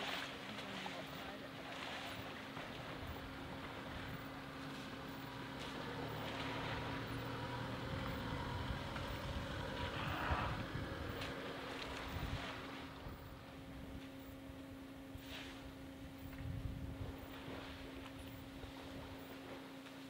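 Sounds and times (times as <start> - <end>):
vehicle engine idling: 0.8 - 14.8
wind on microphone: 7.8 - 14.0, 15.6 - 19.1.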